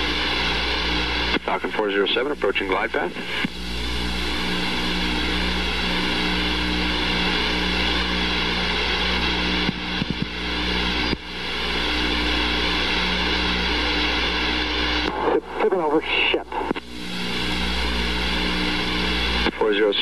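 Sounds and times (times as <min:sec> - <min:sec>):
constant whine: 0:00.0 - 0:20.0
jet aircraft drone: 0:00.0 - 0:20.0.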